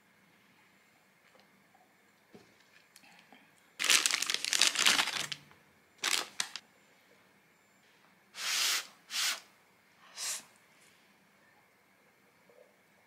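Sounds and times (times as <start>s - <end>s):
paper bag rustling: 3.8s - 5.4s, 6.0s - 6.6s.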